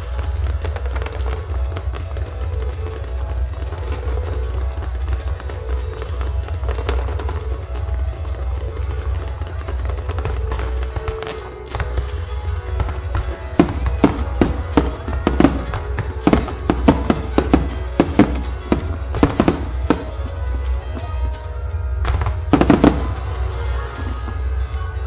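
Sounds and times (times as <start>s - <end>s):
music playing: 0.0s - 25.0s
firework shells bursting: 13.2s - 21.4s, 22.1s - 23.6s.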